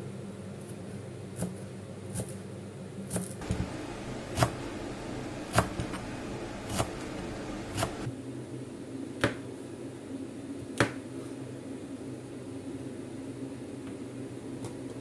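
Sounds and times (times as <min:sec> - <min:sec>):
knife chopping on cutting board: 0:03.1 - 0:04.8, 0:05.4 - 0:08.1
low hum: 0:03.4 - 0:08.2.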